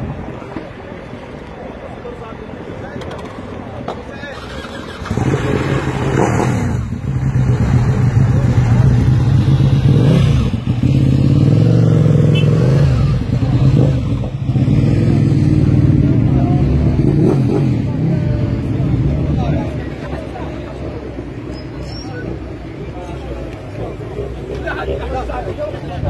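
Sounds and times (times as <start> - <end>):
car engine revving: 4.4 - 19.8.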